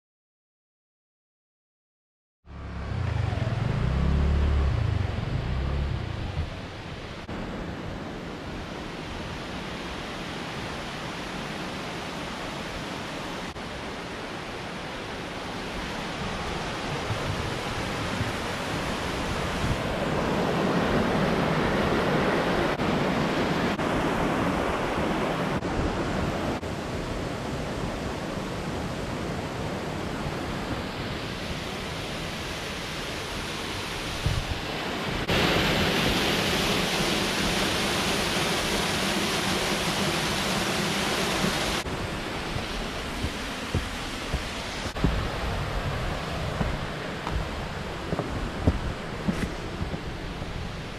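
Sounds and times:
stream and waterfall rushing: 0:02.5 - 0:50.9.

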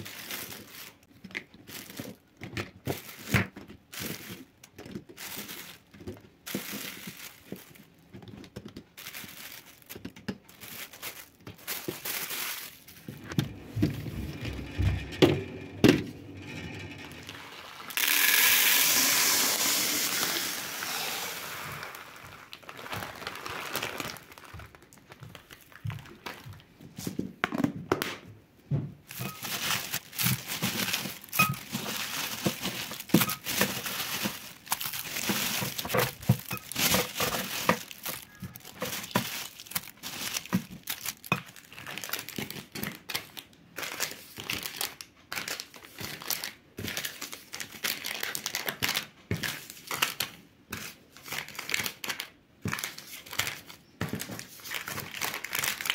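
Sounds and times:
plastic packaging crinkling: 0:00.0 - 0:15.0, 0:16.8 - 0:26.6, 0:29.1 - 0:55.9
grains pouring into container: 0:13.1 - 0:22.4.

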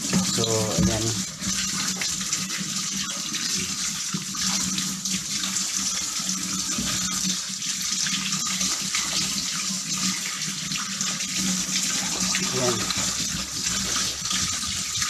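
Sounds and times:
tap running into steel sink: 0:00.0 - 0:02.4, 0:05.4 - 0:07.4
water splashing over vegetables: 0:00.0 - 0:15.0.

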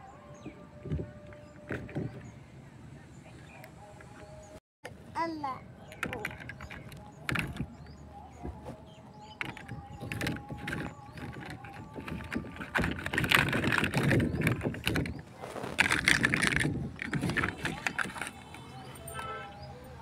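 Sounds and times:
plastic blocks clicking together: 0:09.4 - 0:15.2, 0:15.8 - 0:18.5.

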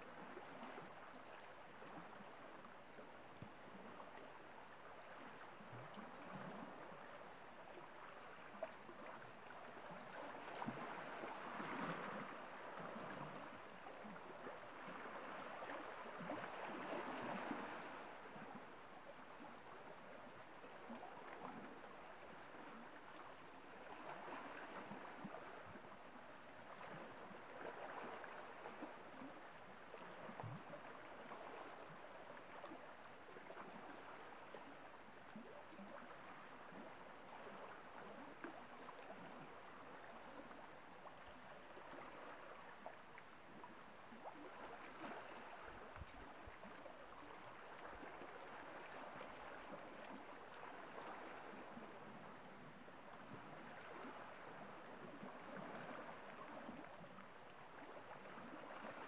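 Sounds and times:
small waves lapping on rocks: 0:41.7 - 0:57.2.

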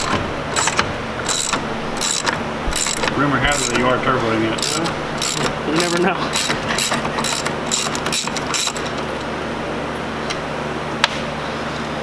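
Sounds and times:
ratchet wrench clicking: 0:00.0 - 0:03.9, 0:04.6 - 0:09.0.

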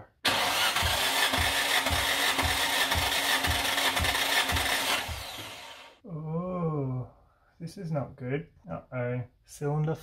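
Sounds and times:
engine cranking on starter motor: 0:00.2 - 0:06.0.

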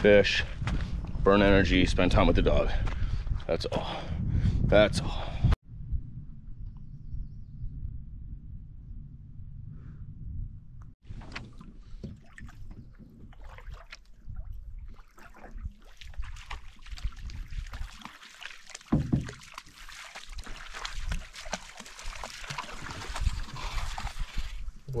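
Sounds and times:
paddle strokes in water: 0:11.0 - 0:24.8
water splashing around hull: 0:11.0 - 0:25.0.

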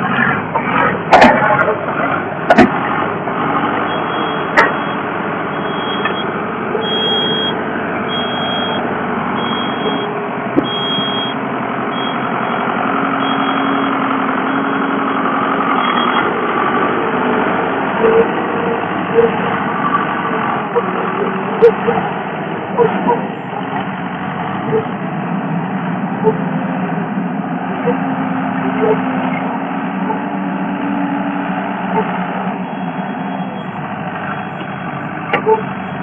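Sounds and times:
loader engine running: 0:00.0 - 0:36.0
backup alarm beeping: 0:03.8 - 0:14.9, 0:15.8 - 0:16.3, 0:32.0 - 0:36.0.

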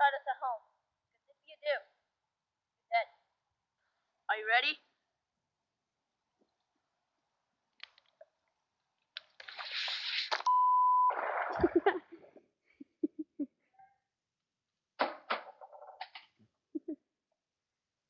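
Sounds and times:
censor bleep: 0:10.5 - 0:11.2.

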